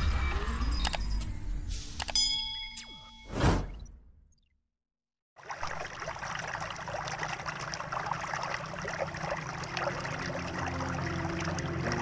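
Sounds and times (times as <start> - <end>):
water trickling: 5.4 - 12.0
soft music with low notes: 9.9 - 12.0.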